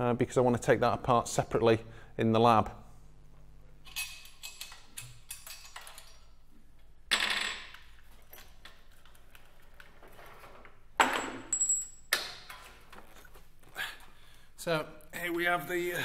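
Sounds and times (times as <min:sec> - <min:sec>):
metal clinks and rattles: 0:03.8 - 0:06.4, 0:11.0 - 0:12.1.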